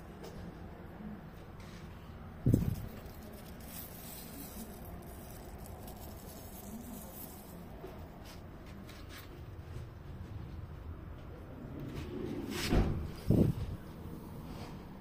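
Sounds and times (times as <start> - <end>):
background noise: 0.0 - 15.0
hand rustling plant leaves: 2.4 - 9.4.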